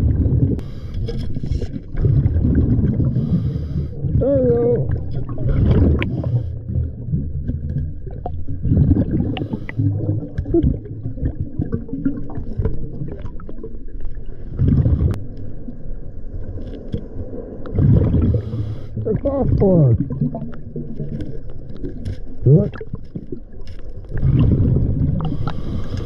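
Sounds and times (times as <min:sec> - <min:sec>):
bubbles rumbling and gurgling: 0:00.0 - 0:26.0
diver breathing through regulator: 0:00.6 - 0:01.4, 0:03.0 - 0:04.2, 0:05.9 - 0:06.8, 0:09.2 - 0:10.0, 0:18.2 - 0:19.0, 0:25.2 - 0:26.0.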